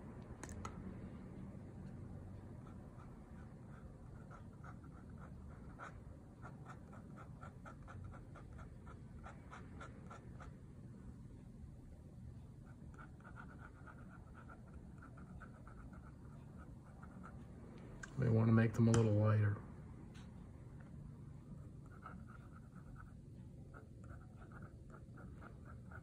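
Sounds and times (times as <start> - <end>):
pen nib scratching on paper: 2.4 - 10.6, 12.6 - 17.5, 21.5 - 26.0.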